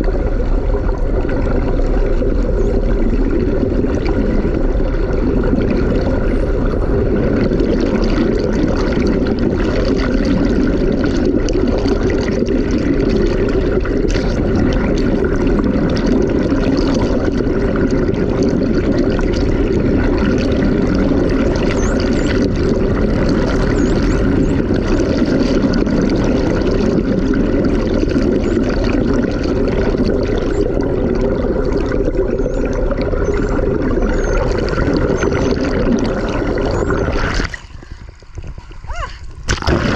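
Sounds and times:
low hum from boat: 0.0 - 39.9
underwater rush of water: 0.0 - 39.9
dolphin whistles: 21.7 - 22.5, 23.6 - 24.7, 32.4 - 35.5.

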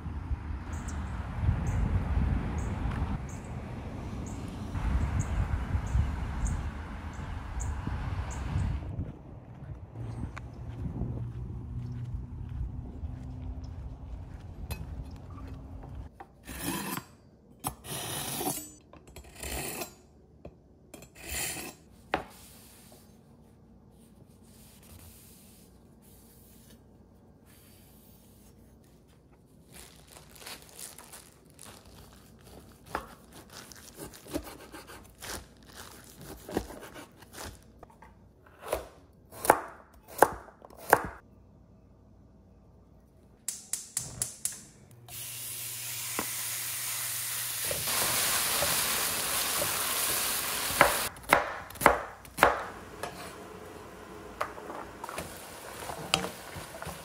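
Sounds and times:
wind rumbling on microphone: 0.0 - 16.1
knife chopping on wooden board: 38.6 - 41.2, 50.8 - 53.2.

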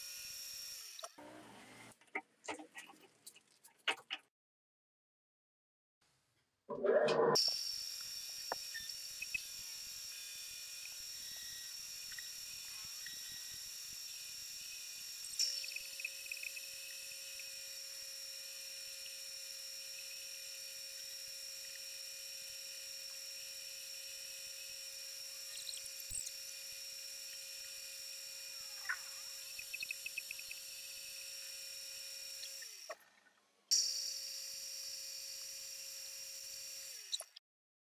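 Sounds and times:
lathe high-pitched whine: 7.5 - 32.8
small ticks: 8.0 - 9.5, 12.1 - 17.6, 28.6 - 30.7
cutting tool squeak: 8.7 - 9.6, 11.1 - 17.0, 25.3 - 26.6.

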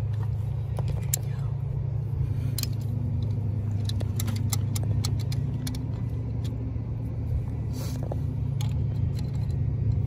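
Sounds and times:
low machine drone: 0.0 - 10.0
metallic tool clicks: 2.5 - 6.6.

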